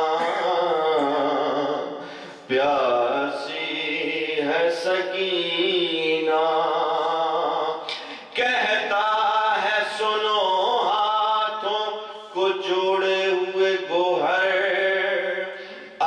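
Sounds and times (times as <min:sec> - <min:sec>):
man chanting a lament: 0:00.0 - 0:16.0.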